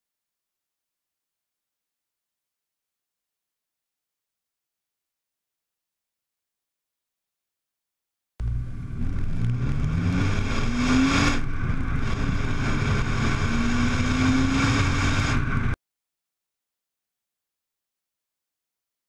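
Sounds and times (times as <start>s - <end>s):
car exhaust accelerating: 8.4s - 15.8s.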